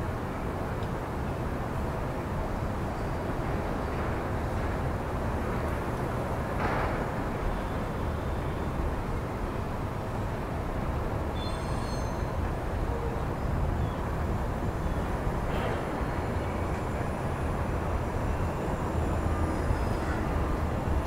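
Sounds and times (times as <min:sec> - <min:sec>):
distant subway train rumble: 0:00.0 - 0:21.0
faint high squeal: 0:11.3 - 0:12.4.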